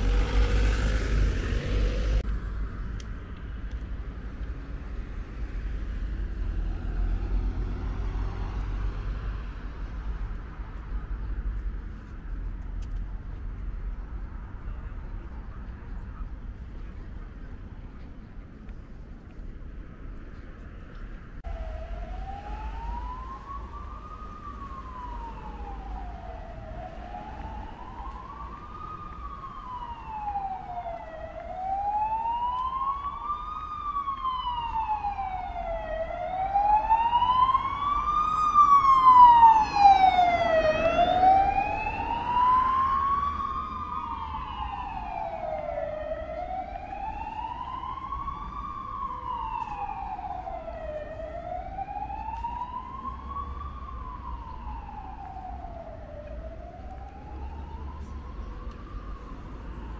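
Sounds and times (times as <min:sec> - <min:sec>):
emergency vehicle siren wailing: 0:00.0 - 0:02.3, 0:06.3 - 0:09.2, 0:21.4 - 0:59.9.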